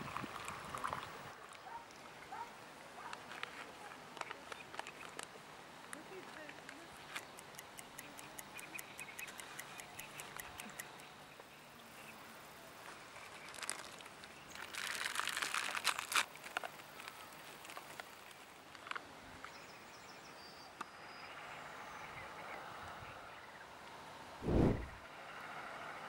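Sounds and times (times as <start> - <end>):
plastic and foil bag crinkling: 13.3 - 18.4.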